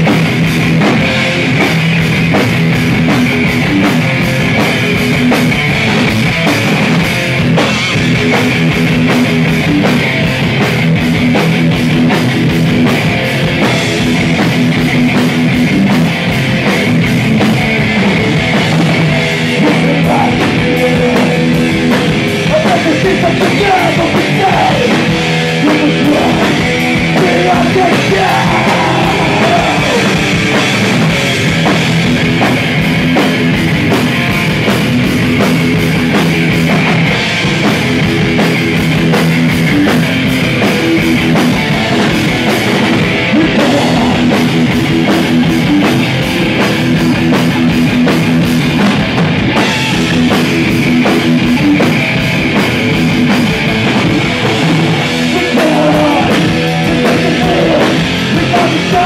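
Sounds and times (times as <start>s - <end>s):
distorted electric guitars: 0.0s - 59.0s
loud fast rock band playing: 0.0s - 59.0s
pounding drums: 0.0s - 59.0s
singer shouting vocals: 19.5s - 30.4s, 43.2s - 44.6s, 55.2s - 59.0s.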